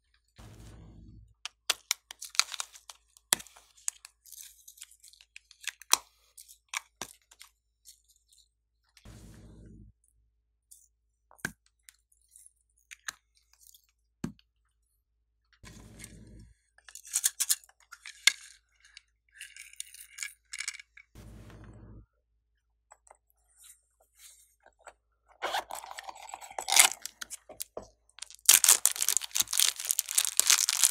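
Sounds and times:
crisp crackly rustling: 0:26.3 - 0:30.9
plastic toy balls clicking: 0:26.6 - 0:30.9.

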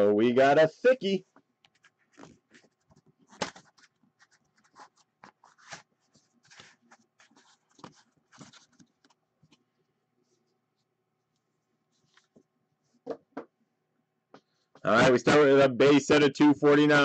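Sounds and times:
cardboard scraping and rustling: 0:01.8 - 0:09.1.

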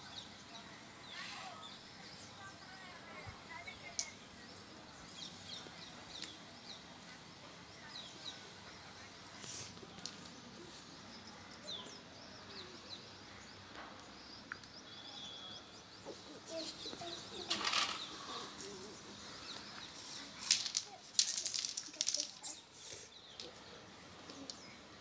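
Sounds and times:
faint bird chirps: 0:07.8 - 0:20.4.

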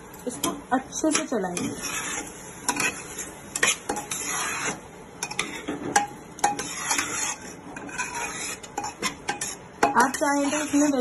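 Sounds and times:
spoon scraping pot: 0:00.4 - 0:11.0.

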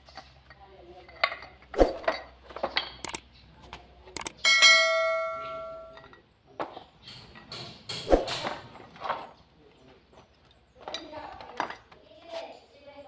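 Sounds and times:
metal part ringing: 0:04.2 - 0:06.2.

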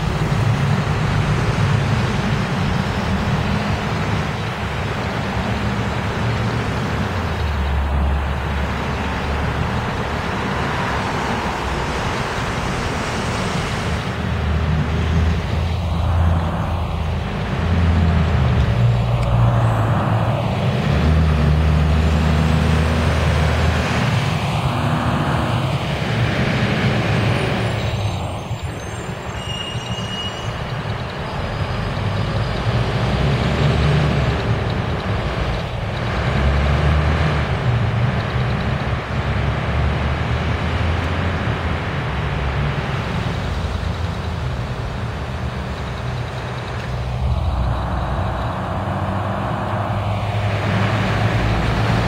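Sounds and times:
diesel buses driving past: 0:00.0 - 0:52.0
road and traffic noise: 0:00.0 - 0:52.0
vehicle passing: 0:39.0 - 0:52.0.

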